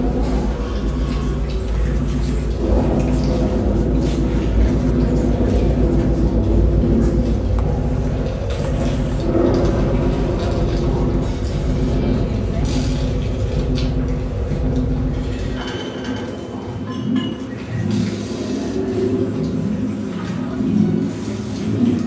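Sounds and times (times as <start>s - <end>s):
loud low rumble: 0.0s - 15.6s.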